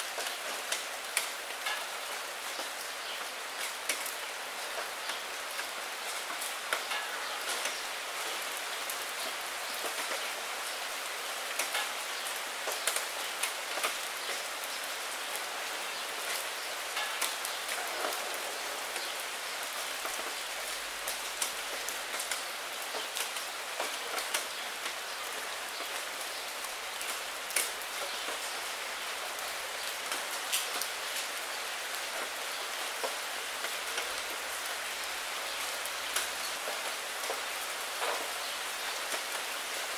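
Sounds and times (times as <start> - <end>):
rain falling on a puddle: 0.0 - 39.9.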